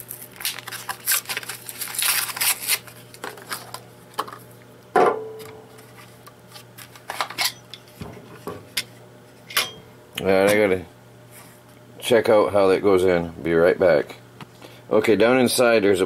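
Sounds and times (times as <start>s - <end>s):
plastic blister pack crinkling: 0.0s - 4.4s.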